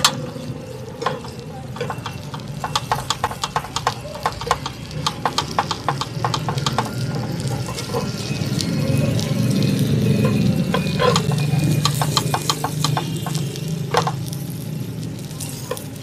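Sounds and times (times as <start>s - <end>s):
fritters sizzling: 0.0s - 16.0s
tongs clicking against frying pan: 1.0s - 8.1s, 10.7s - 14.4s.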